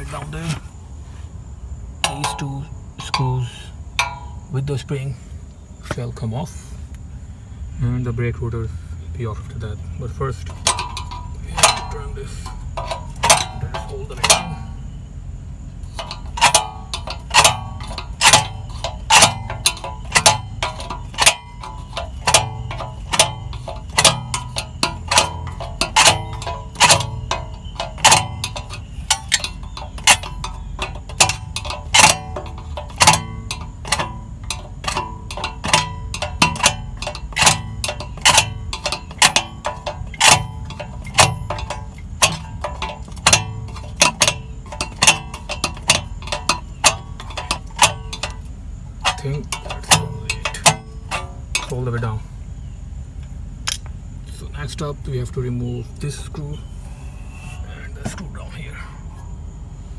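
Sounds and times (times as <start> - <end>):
brake adjuster clicking: 10.4 - 14.9, 15.8 - 52.2.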